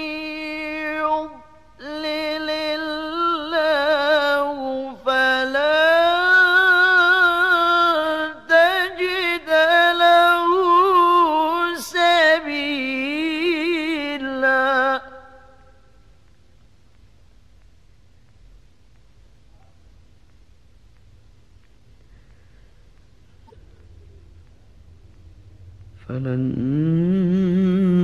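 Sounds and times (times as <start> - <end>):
person reciting melodically: 0.0 - 16.0, 25.8 - 28.0.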